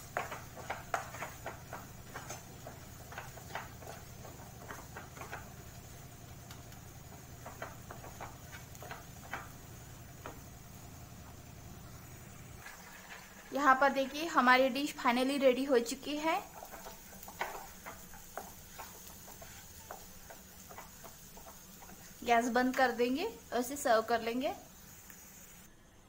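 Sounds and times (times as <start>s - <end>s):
spatula scraping a pan: 0.0s - 5.7s, 6.5s - 9.6s, 16.4s - 22.2s.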